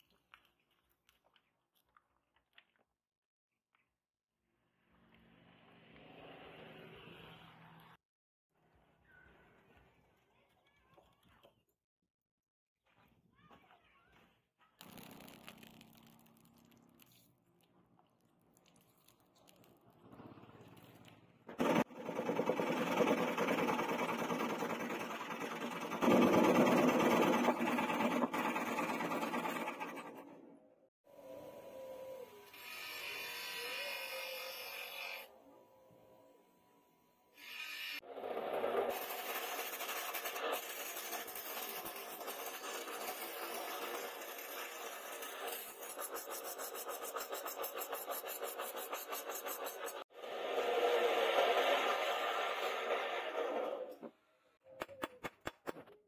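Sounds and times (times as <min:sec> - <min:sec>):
power saw cutting wood: 0:32.2 - 0:35.3, 0:37.4 - 0:54.1
chisel scraping wood: 0:38.7 - 0:50.1.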